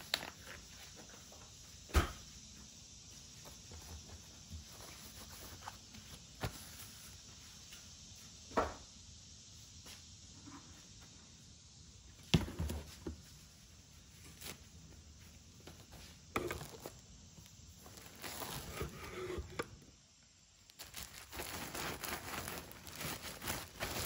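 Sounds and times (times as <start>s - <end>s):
plastic packaging rustling: 0.0s - 1.0s, 16.4s - 19.7s, 20.6s - 24.0s.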